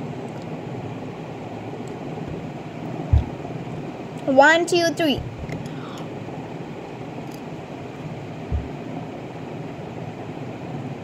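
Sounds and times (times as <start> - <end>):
steady hum and hiss: 0.0 - 11.0
dull low thump: 3.1 - 3.6, 5.2 - 5.6, 8.5 - 8.8.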